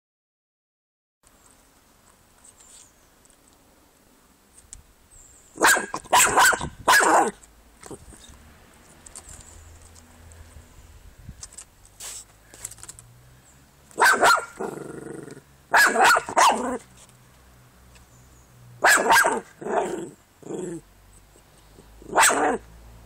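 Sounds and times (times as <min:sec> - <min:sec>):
dog barking sharply: 0:05.6 - 0:07.4, 0:14.0 - 0:14.7, 0:15.7 - 0:16.8, 0:18.8 - 0:20.0, 0:22.0 - 0:22.6.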